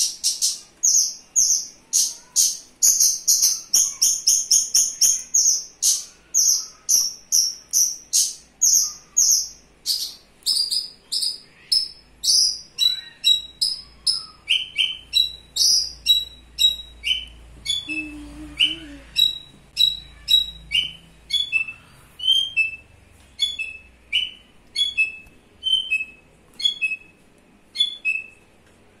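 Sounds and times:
bird singing high repeated notes: 6.7 - 28.4.

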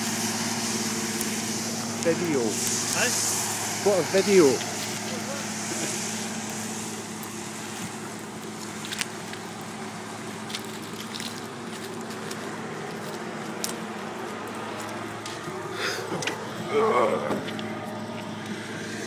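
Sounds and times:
tractor engine running: 0.0 - 19.0.

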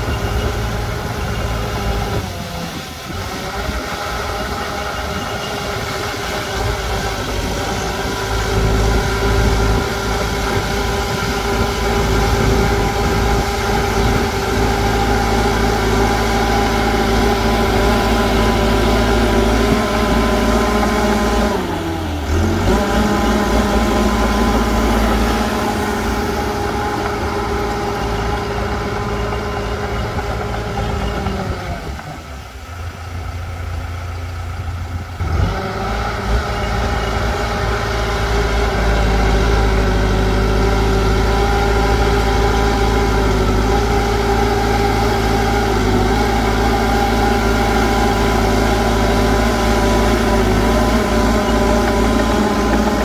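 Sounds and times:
diesel engine running: 0.0 - 53.0.

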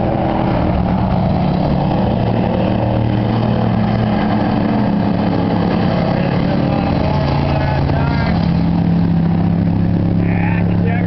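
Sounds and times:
racing truck engines: 0.0 - 11.0.

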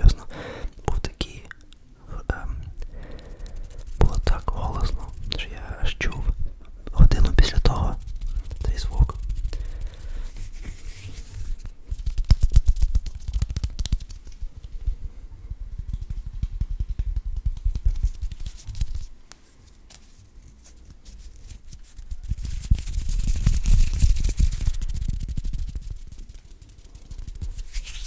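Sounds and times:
hands rubbing together: 2.9 - 5.6, 7.2 - 14.7, 17.3 - 19.1, 19.9 - 28.0
fingers fluttering at microphone: 2.9 - 6.4, 7.0 - 19.1, 21.5 - 28.0.

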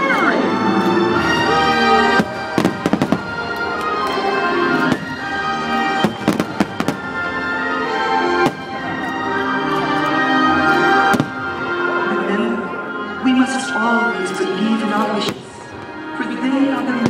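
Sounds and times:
music: 0.0 - 17.0
fireworks bursting with bangs: 1.6 - 9.2, 10.9 - 11.7, 15.2 - 16.0.

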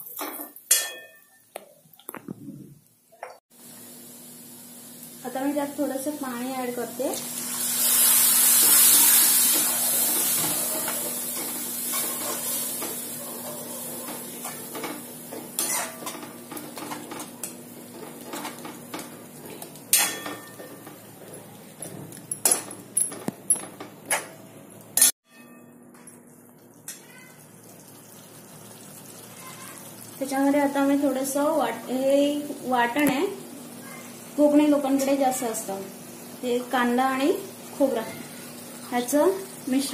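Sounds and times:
spoon clinking against pan: 0.7 - 1.4
water sizzling in hot oil: 3.5 - 21.9, 26.4 - 39.9
metal spoon scraping pan: 15.6 - 17.6.

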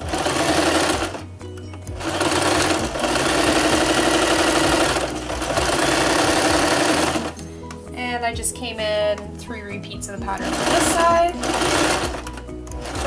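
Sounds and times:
electric sewing machine stitching: 0.0 - 1.3, 1.9 - 7.4, 10.3 - 13.0.

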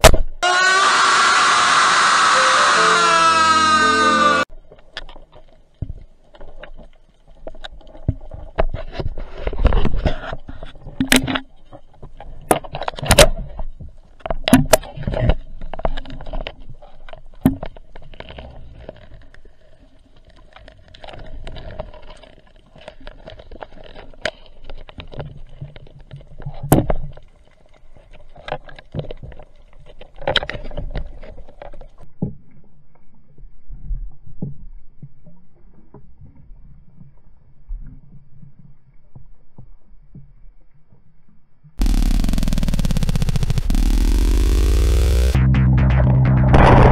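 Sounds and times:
faint steady hum: 41.8 - 45.4.

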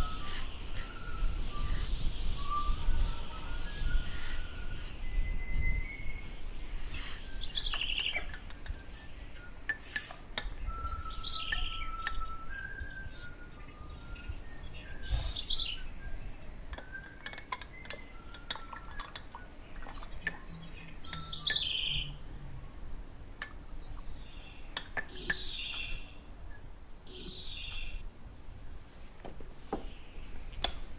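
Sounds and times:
whistled bird notes: 0.0 - 8.4, 10.4 - 19.5, 20.2 - 22.2
birds chirping: 0.0 - 28.0.

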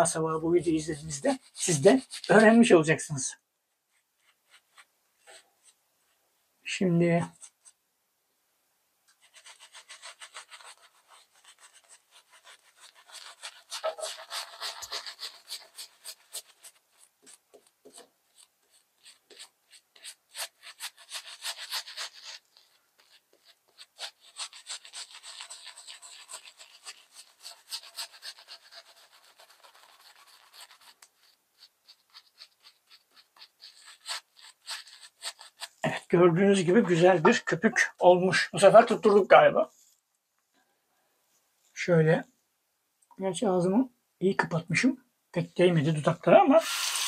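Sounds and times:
shaving brush swishing on face: 9.3 - 31.0, 46.1 - 47.0.

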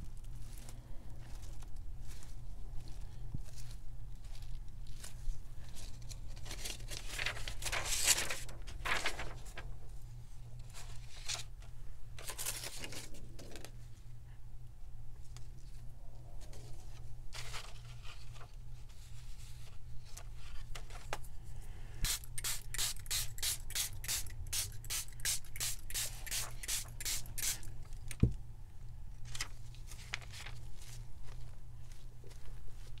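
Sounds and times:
spray bottle hissing sprays: 22.0 - 27.7.

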